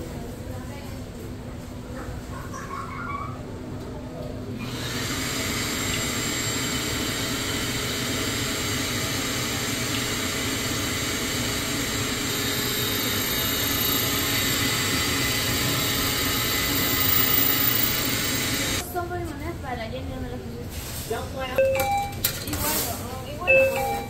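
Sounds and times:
key cutting machine whirring: 0:04.6 - 0:18.8.

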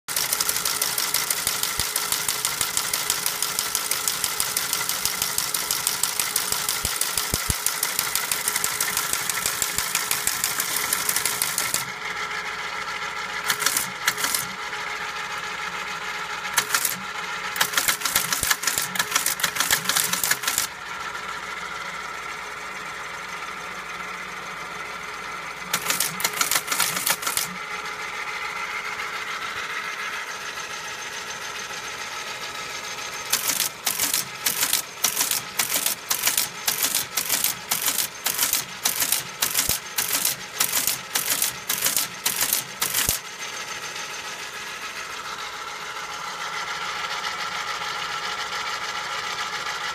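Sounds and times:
teletype mechanism clattering: 0:00.1 - 0:12.0, 0:13.4 - 0:14.6, 0:16.5 - 0:20.8, 0:25.7 - 0:27.7, 0:33.2 - 0:43.7
teletype motor humming: 0:00.1 - 0:21.7, 0:25.5 - 0:30.4, 0:31.1 - 0:45.4.

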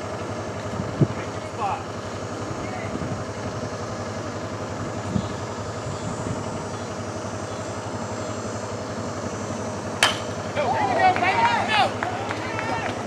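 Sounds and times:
engine drone with low pulsing: 0:00.0 - 0:13.0
bat hitting ball: 0:10.0 - 0:10.3.

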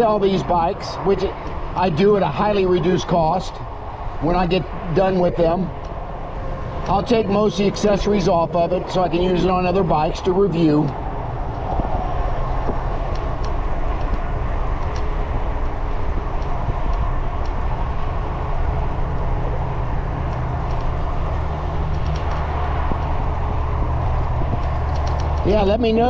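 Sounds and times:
tyres on pavement: 0:00.0 - 0:26.0
wind rumble on microphone: 0:00.0 - 0:26.0
faint ticks: 0:20.2 - 0:21.0.

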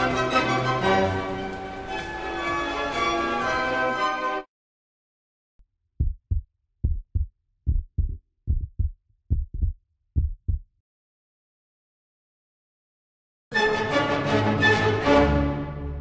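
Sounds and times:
heartbeat thumps: 0:06.0 - 0:10.7.

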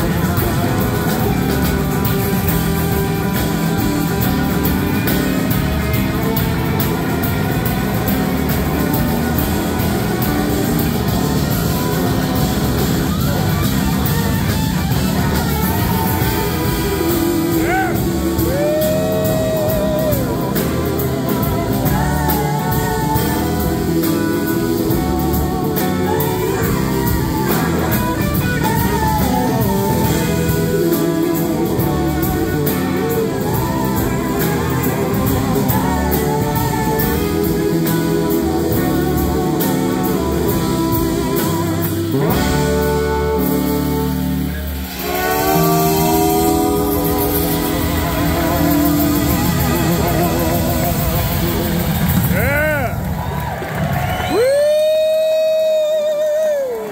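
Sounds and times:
drums: 0:00.0 - 0:56.9
electric guitars: 0:00.0 - 0:56.9
woman singing: 0:15.3 - 0:44.2, 0:45.0 - 0:51.9.

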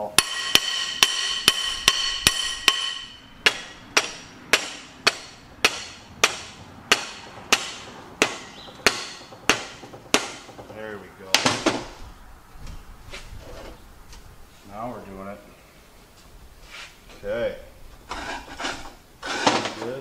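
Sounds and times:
hammer striking steel: 0:00.0 - 0:10.6.

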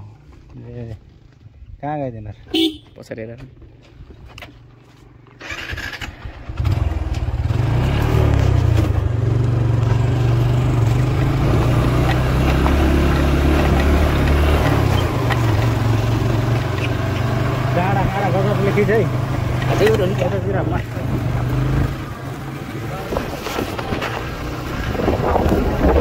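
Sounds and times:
tyres on stony dirt track: 0:00.0 - 0:26.0
motorcycle engine running: 0:05.3 - 0:26.0.

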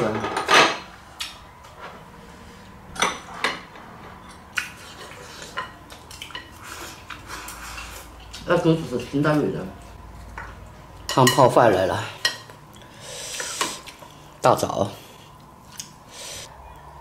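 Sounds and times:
tableware clinking on ceramic bowls: 0:11.1 - 0:12.5.

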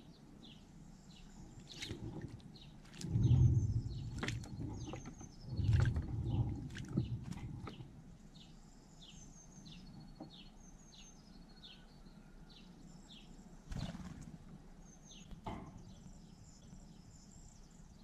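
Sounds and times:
small birds singing: 0:00.0 - 0:18.0
bird wings fluttering: 0:13.7 - 0:14.5.

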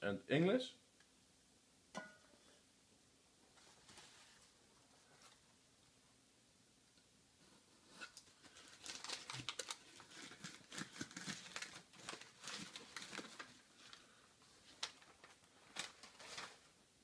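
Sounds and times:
packing material crinkling: 0:07.9 - 0:16.8.

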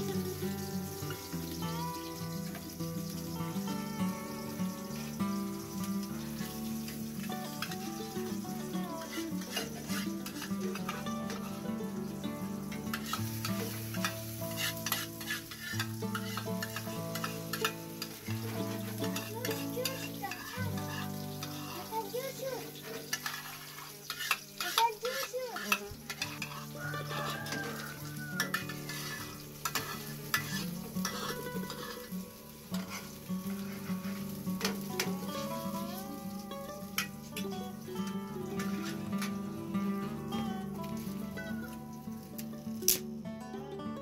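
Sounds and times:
eggplant sizzling in oil: 0:00.0 - 0:44.0
metal tongs scraping pan: 0:09.0 - 0:11.6, 0:12.9 - 0:32.2, 0:32.8 - 0:36.0, 0:36.9 - 0:37.4, 0:38.5 - 0:39.4.

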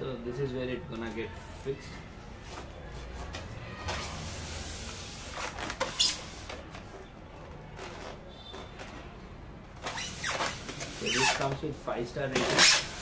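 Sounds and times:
foam rubbing and scraping: 0:03.8 - 0:06.7, 0:09.8 - 0:11.6.

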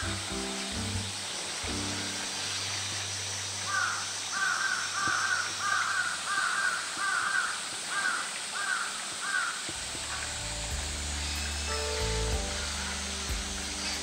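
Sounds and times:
bird calling: 0:03.6 - 0:14.0.

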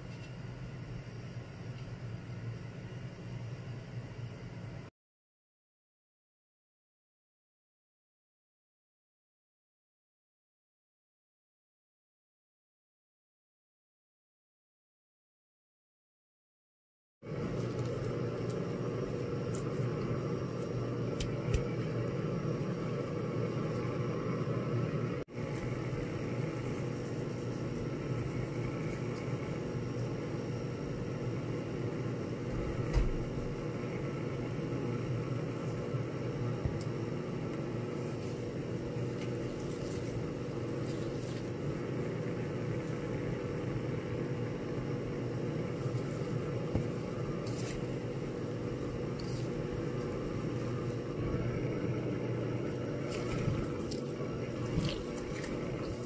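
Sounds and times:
low mechanical hum: 0:00.0 - 0:04.9, 0:17.2 - 0:56.0.

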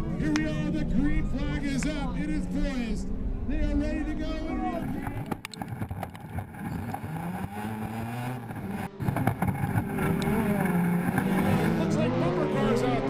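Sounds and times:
truck engines at full throttle: 0:00.0 - 0:13.0.

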